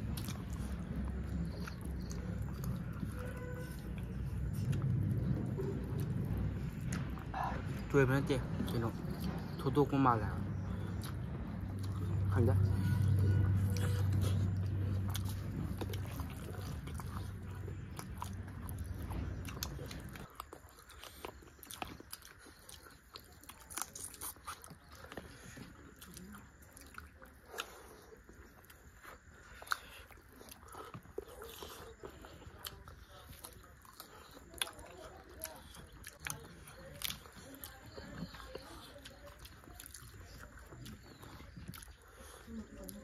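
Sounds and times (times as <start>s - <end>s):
low hum: 0.0s - 21.0s
chewing with wet smacks: 0.0s - 43.0s.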